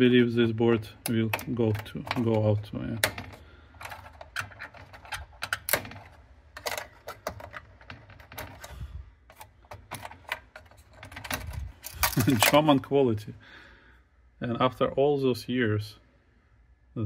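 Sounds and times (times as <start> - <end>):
connectors clicking and knocking: 0.0 - 12.9.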